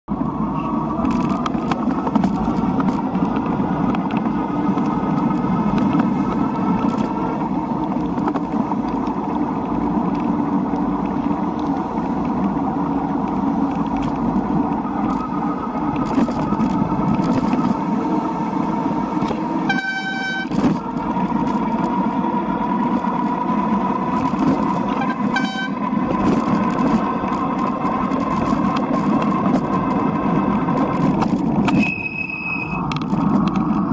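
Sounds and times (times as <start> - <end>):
traffic on wet road: 0.1 - 33.9
vehicle horn honking: 19.6 - 20.6, 24.9 - 25.9.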